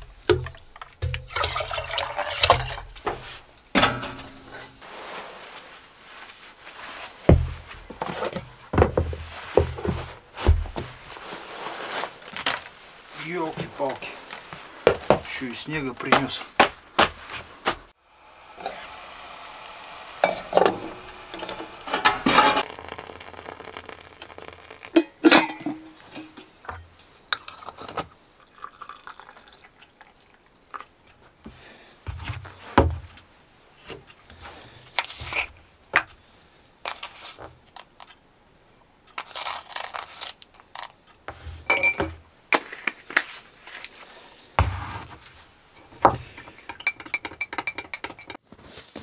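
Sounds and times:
water pouring: 0.0s - 3.4s, 18.4s - 26.4s, 27.3s - 30.9s
dishes and utensils clinking: 25.0s - 26.6s, 41.7s - 42.2s, 45.8s - 48.4s.

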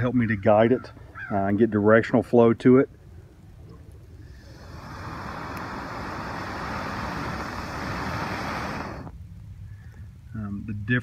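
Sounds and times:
breath blowing through stalk: 4.2s - 10.1s.

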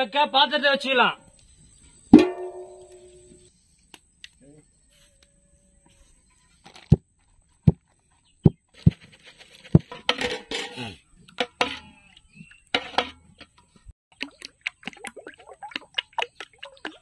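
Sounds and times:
metal pots clanking: 2.1s - 3.4s, 9.7s - 13.8s
clattering and rustling: 8.7s - 11.9s.

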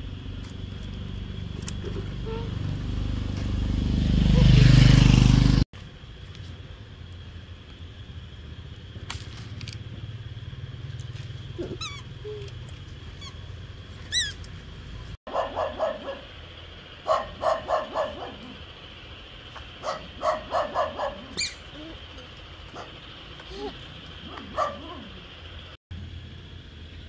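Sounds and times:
dog barking: 15.3s - 16.3s, 17.0s - 18.6s, 19.8s - 21.5s, 22.7s - 23.0s, 24.2s - 25.2s
high falling chirps: 21.3s - 22.0s.

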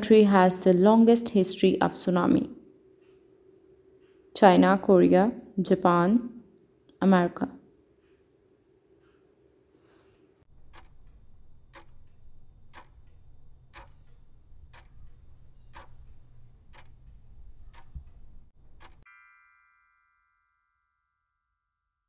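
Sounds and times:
clock ticking: 10.5s - 19.0s.

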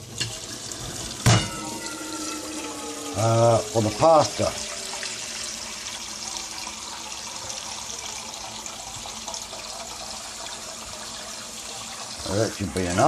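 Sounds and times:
tap water filling a metal pot: 0.0s - 13.0s.

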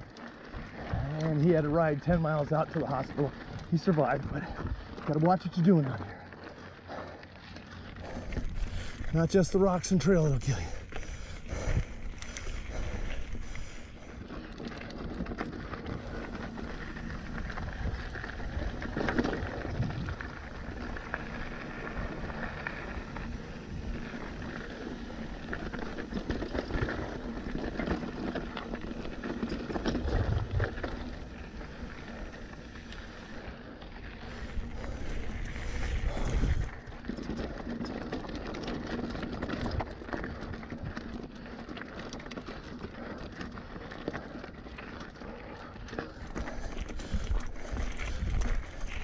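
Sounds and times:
bike rattling over bumps: 0.0s - 49.0s
tyres crunching over gravel: 0.0s - 49.0s
wind buffeting microphone: 15.8s - 33.4s, 34.2s - 37.1s, 46.9s - 49.0s.

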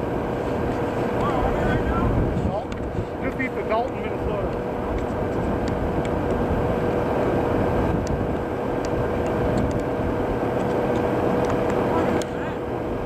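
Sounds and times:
low hum: 0.0s - 13.0s
wind rushing on microphone: 0.0s - 13.0s.

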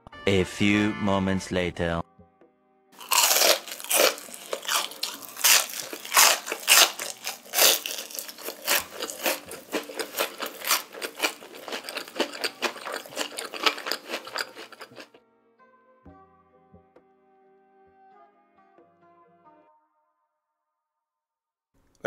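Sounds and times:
person chewing crunchy food: 3.0s - 15.2s.

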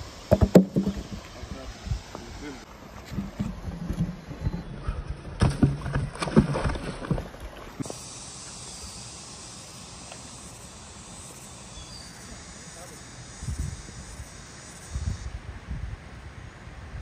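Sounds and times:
steady hiss: 0.0s - 3.1s, 7.8s - 17.0s
wooden stump knocking and scraping on rock: 0.3s - 1.4s, 3.0s - 7.4s.

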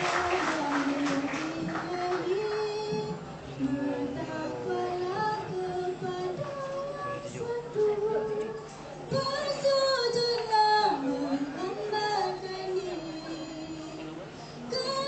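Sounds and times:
girls singing together: 0.0s - 15.0s.

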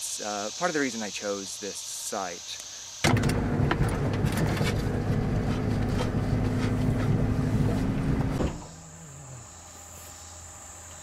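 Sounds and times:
insect drone: 0.0s - 4.0s, 8.3s - 11.0s
rattles and knocks: 3.1s - 8.6s
truck engine running: 3.1s - 8.8s.

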